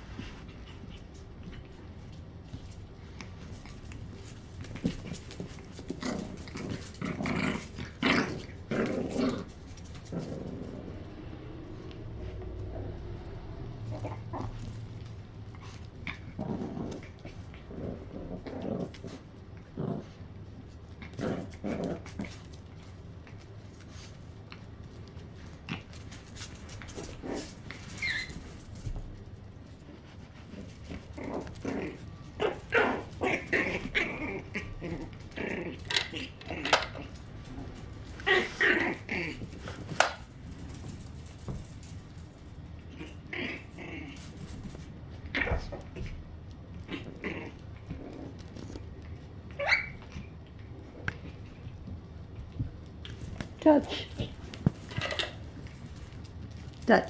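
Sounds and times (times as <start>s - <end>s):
dogs growling: 0.0s - 24.8s, 25.4s - 56.7s
puppies play-fighting: 0.0s - 57.0s
dog yelp: 49.6s - 50.0s.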